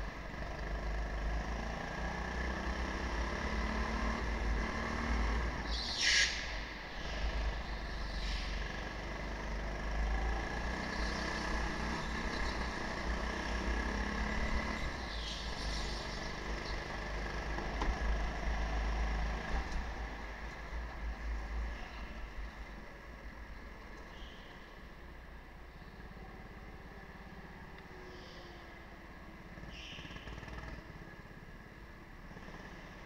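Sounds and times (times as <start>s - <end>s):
go-kart engine running: 7.0s - 20.4s, 29.0s - 33.0s.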